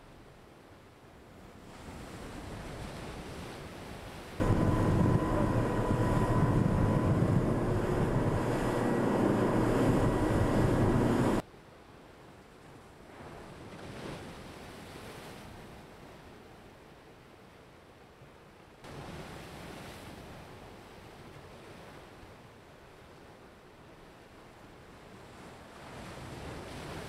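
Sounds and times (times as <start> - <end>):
waves: 0.0 - 27.0
faint steady whine: 4.4 - 11.4
rushing water and spray: 4.4 - 11.4
wind buffeting microphone: 4.4 - 11.4.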